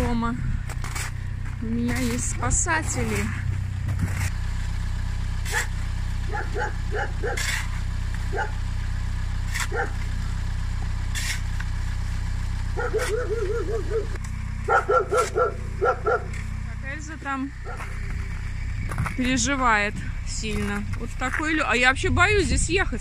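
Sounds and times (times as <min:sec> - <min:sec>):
car engine idling: 0:00.0 - 0:23.0
dog barking and yapping: 0:06.3 - 0:07.6, 0:08.3 - 0:08.6, 0:09.6 - 0:10.1, 0:12.8 - 0:16.4, 0:17.6 - 0:18.0.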